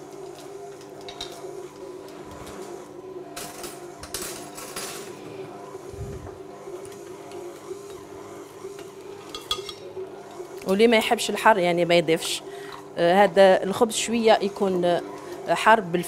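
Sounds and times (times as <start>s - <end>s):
steady low hum: 5.2s - 16.0s.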